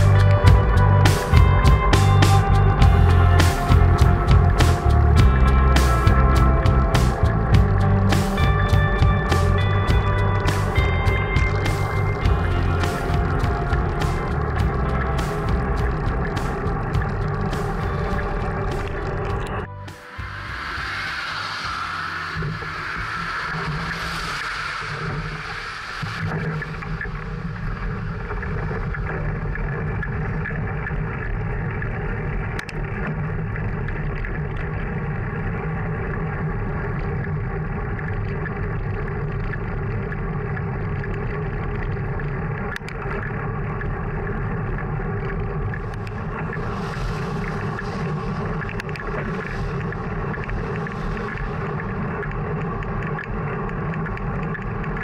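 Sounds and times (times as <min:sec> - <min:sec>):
bright hiss: 0:19.8 - 0:27.4, 0:46.0 - 0:52.3.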